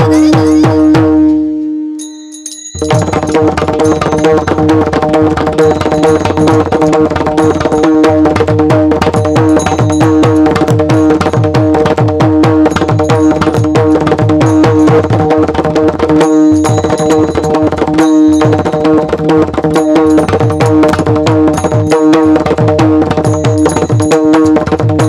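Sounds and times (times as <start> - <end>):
hand drum fast rhythm: 0.0 - 1.2, 2.8 - 25.0
small hand cymbals ringing: 2.0 - 4.7, 9.2 - 11.5, 12.7 - 15.1, 16.2 - 19.0, 23.2 - 24.3.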